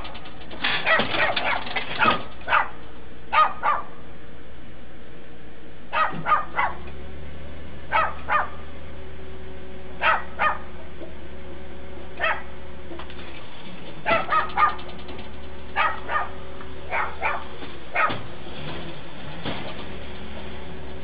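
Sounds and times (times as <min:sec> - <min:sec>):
steady low hum: 0:00.0 - 0:21.0
dog barking: 0:00.8 - 0:04.0, 0:05.9 - 0:06.8, 0:07.9 - 0:08.6, 0:10.0 - 0:10.7, 0:12.2 - 0:12.5, 0:14.0 - 0:14.9, 0:15.8 - 0:18.2.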